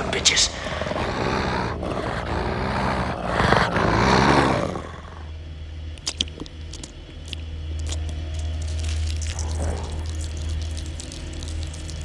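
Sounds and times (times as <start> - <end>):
dogs snarling and barking: 0.0 - 5.4, 9.2 - 12.0
low steady hum: 0.0 - 12.0.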